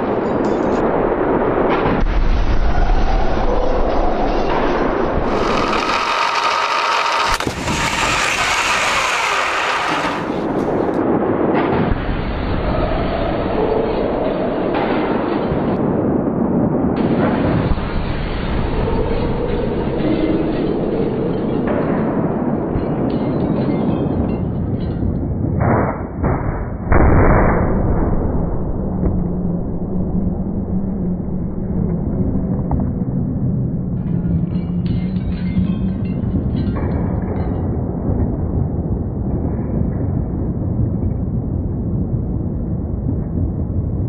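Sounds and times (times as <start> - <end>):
steady rumble: 4.5 - 22.6, 24.8 - 44.0
sharp impact bang: 25.6 - 29.2.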